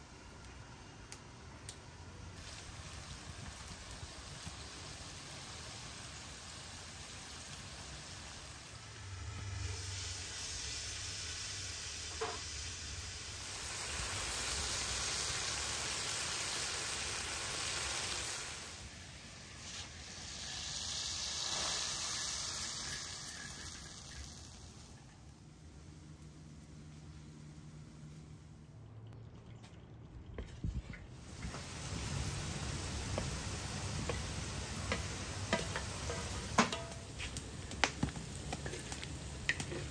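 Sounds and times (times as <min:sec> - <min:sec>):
chicken sizzling in oil: 0:02.3 - 0:25.4, 0:31.2 - 0:39.9.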